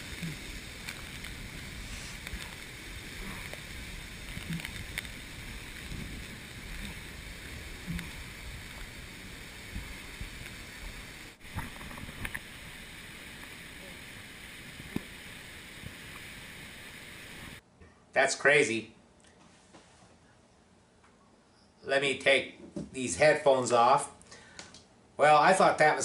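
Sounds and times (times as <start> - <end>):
floodwater rushing through canyon: 0.0 - 16.6.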